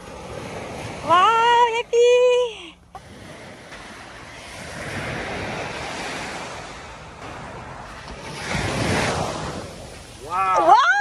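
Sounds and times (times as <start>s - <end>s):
small waves breaking on shore: 0.0s - 11.0s
wind rumbling on microphone: 3.0s - 11.0s.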